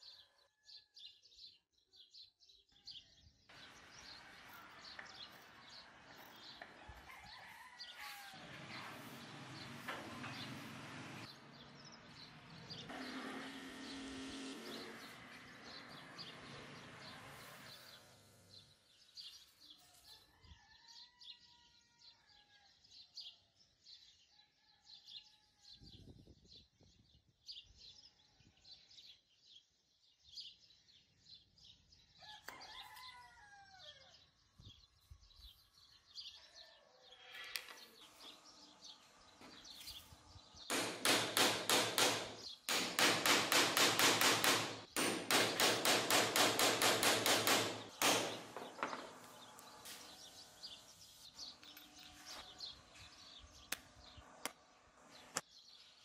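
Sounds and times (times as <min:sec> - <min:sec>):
rooster crowing: 0:04.5 - 0:09.3, 0:20.0 - 0:22.4, 0:32.2 - 0:34.2.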